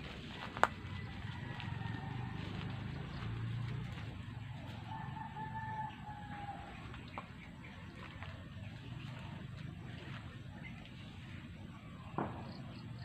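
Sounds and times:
rooster crowing: 0:00.4 - 0:07.0.

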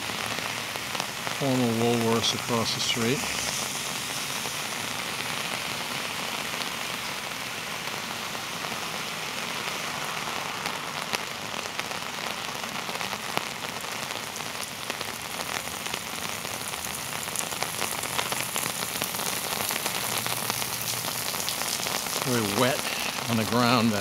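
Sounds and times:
heavy rain on street: 0:00.0 - 0:24.0
sharp raindrop hits: 0:09.8 - 0:24.0.

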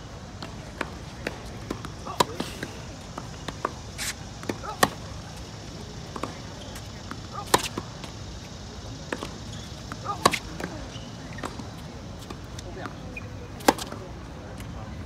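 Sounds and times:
ball bouncing on hard court: 0:00.4 - 0:03.8, 0:04.4 - 0:07.9
racket strings hitting tennis ball: 0:07.0 - 0:07.9, 0:09.0 - 0:10.8.

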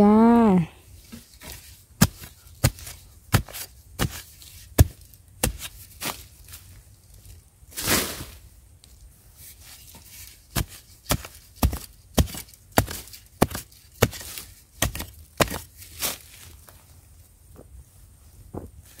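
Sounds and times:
blade scraping soil: 0:01.0 - 0:06.7, 0:07.7 - 0:08.4, 0:09.4 - 0:16.7
digging blade striking soil: 0:01.1 - 0:06.6, 0:10.0 - 0:16.5.

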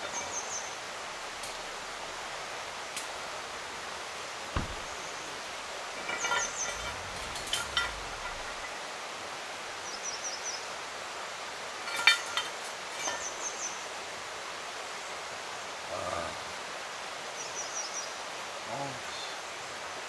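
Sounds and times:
mountain stream rushing: 0:00.0 - 0:20.0
sharp clinks: 0:06.0 - 0:08.7.

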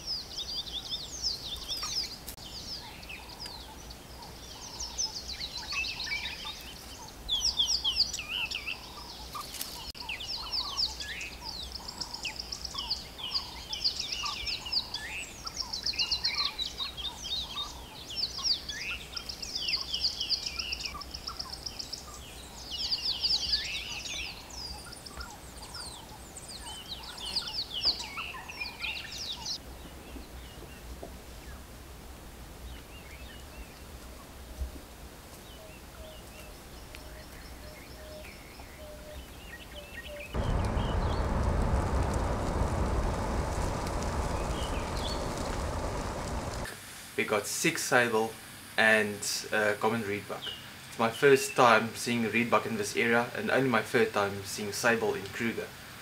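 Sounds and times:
small wild birds chirping and trilling: 0:00.0 - 0:31.6, 0:35.3 - 0:46.7.

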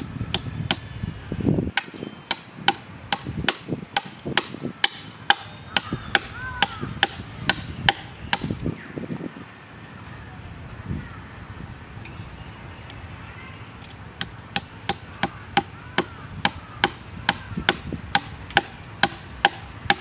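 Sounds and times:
hatchet chopping wood: 0:00.0 - 0:00.8, 0:01.7 - 0:08.6, 0:14.2 - 0:20.0.

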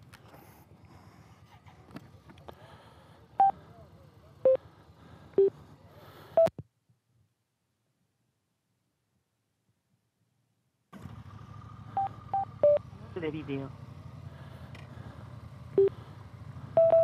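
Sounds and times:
short electronic beeps: 0:12.0 - 0:12.8, 0:16.8 - 0:17.0
faint low rumble: 0:13.7 - 0:17.0.

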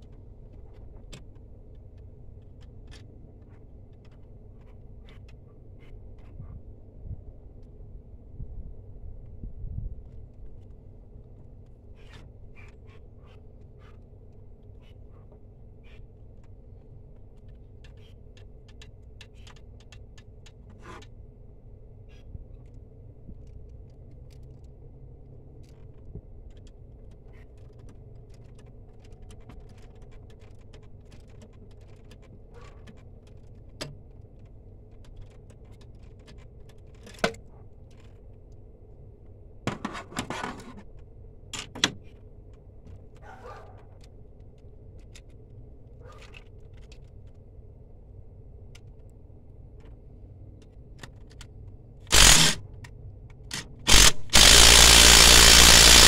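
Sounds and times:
steady low hum: 0:44.0 - 0:56.0.

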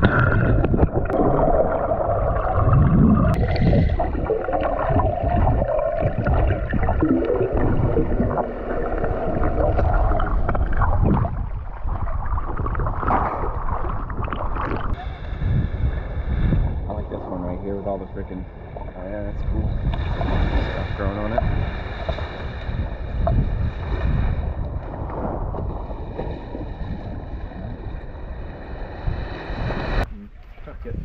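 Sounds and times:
bubbles underwater: 0:00.0 - 0:15.0
underwater rushing and gurgling: 0:00.0 - 0:31.0.

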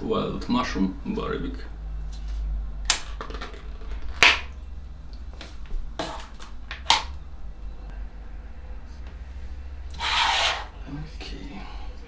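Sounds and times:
steady low hum: 0:03.8 - 0:12.0.

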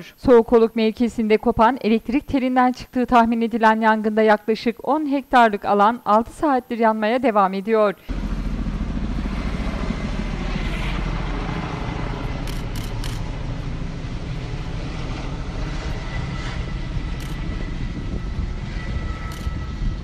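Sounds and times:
faint high whine: 0:08.0 - 0:20.0
aircraft engine rumble: 0:08.1 - 0:20.0.

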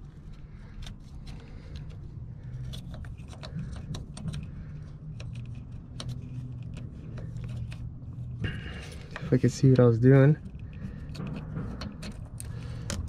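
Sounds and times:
low steady hum: 0:00.0 - 0:13.0
small clicks taps and scrapes: 0:00.2 - 0:13.0.

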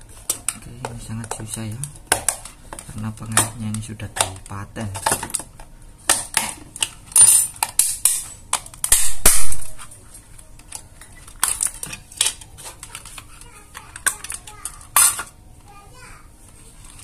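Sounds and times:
plastic scraping and cracking: 0:09.6 - 0:15.8.

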